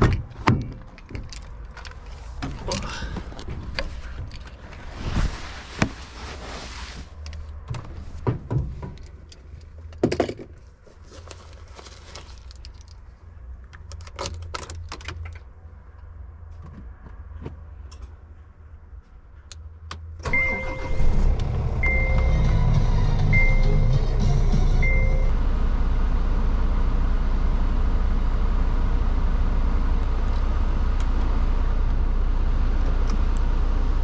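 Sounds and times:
engine low rumble: 0.0s - 34.0s
low hum: 20.2s - 34.0s
dashboard beeping: 21.8s - 23.9s, 24.8s - 25.3s.

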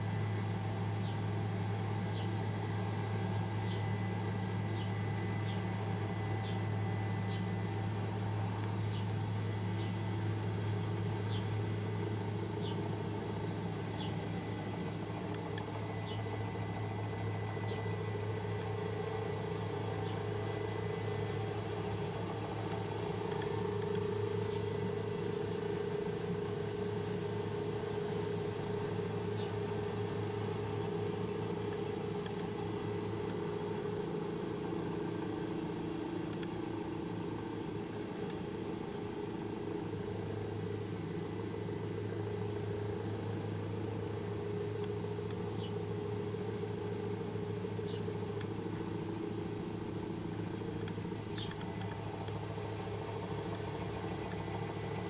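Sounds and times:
helicopter engine and rotors droning: 0.0s - 55.0s
faint clicks: 36.3s - 36.6s, 50.8s - 52.4s, 53.5s - 54.5s.

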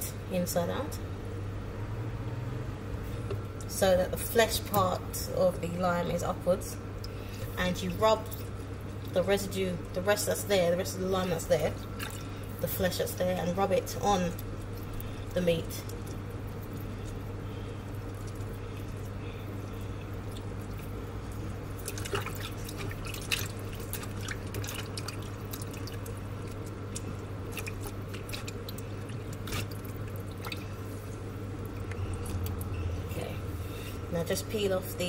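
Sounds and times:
steady low hum: 0.0s - 35.0s
water dripping and splashing in bowl: 6.9s - 33.0s.

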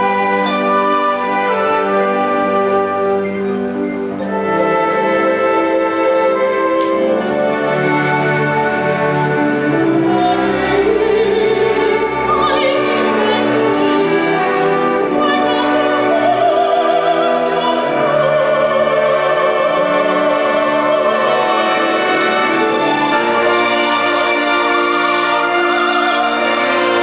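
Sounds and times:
orchestra playing: 0.0s - 27.0s
soprano singing operatically: 9.7s - 22.2s, 23.4s - 27.0s.

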